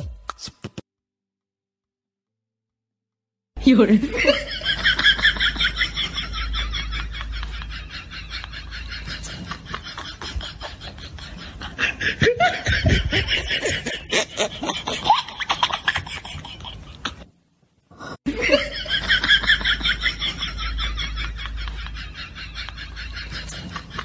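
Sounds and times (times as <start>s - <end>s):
woman laughing: 3.9s - 17.2s, 18.3s - 24.0s.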